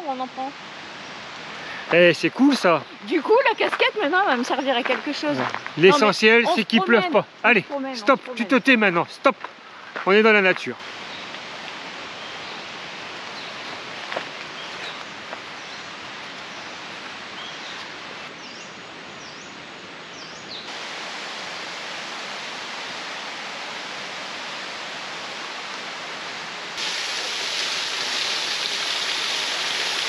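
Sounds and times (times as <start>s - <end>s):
forest stream rushing: 0.0s - 30.0s.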